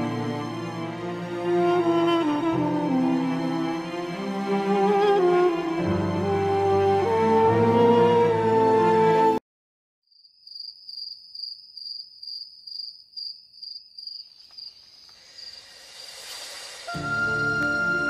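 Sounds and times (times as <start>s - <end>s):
background music: 0.0s - 9.4s, 16.1s - 18.0s
hiss: 15.0s - 18.0s.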